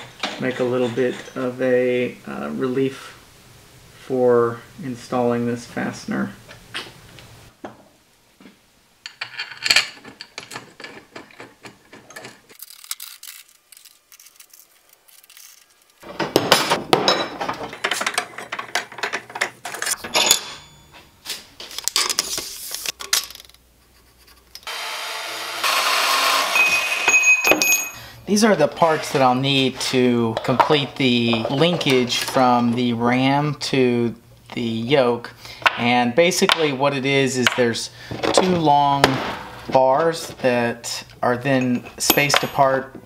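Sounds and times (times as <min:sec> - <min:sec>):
power saw cutting steel: 0:24.7 - 0:27.2.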